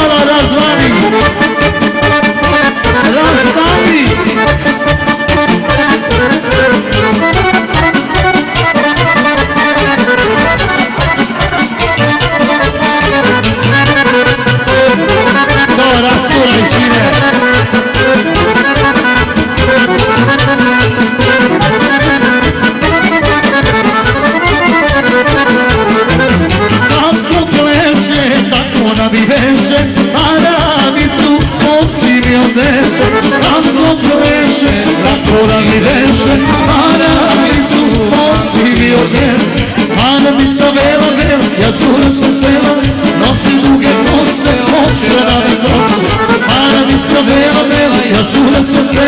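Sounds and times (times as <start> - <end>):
folk band playing with accordion: 0.0 - 49.0.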